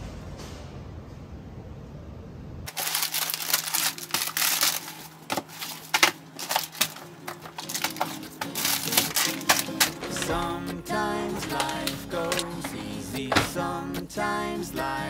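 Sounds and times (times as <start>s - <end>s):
packaging crinkling: 2.7s - 13.6s.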